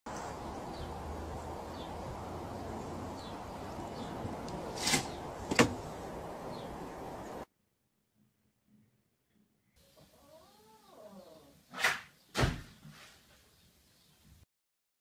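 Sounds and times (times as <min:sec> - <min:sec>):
outdoor hiss: 0:00.1 - 0:07.5.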